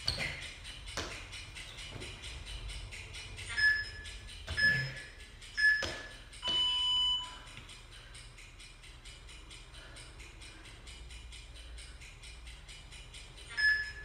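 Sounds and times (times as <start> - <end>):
background music with steady beat: 0.0 - 14.0
timer beeps: 3.4 - 7.6, 11.4 - 14.0.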